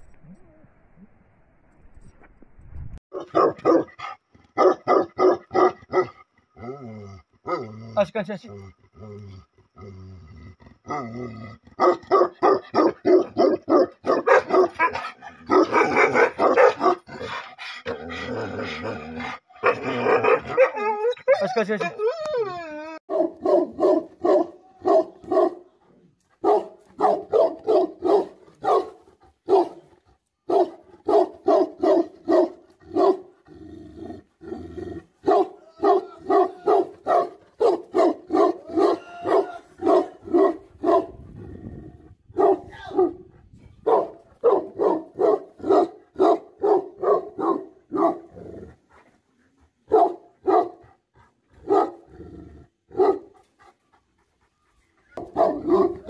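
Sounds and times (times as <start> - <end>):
dog barking aggressively: 3.1 - 6.2, 11.8 - 18.0, 19.6 - 20.8, 23.1 - 25.6, 26.4 - 29.8, 30.5 - 33.3, 35.2 - 41.2, 42.4 - 43.2, 43.8 - 48.4, 49.9 - 50.8, 51.6 - 52.1, 52.9 - 53.3, 55.2 - 56.0.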